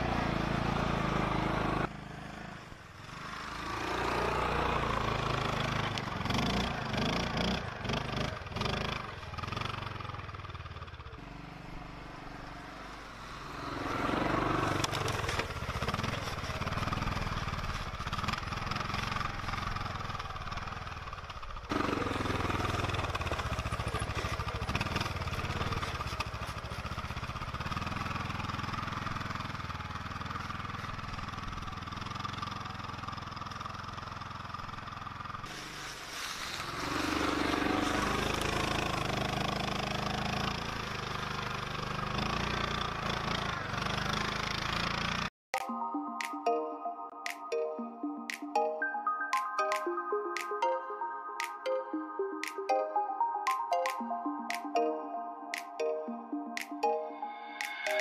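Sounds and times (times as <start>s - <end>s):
atv engine revving: 0.0s - 35.8s, 36.5s - 45.3s.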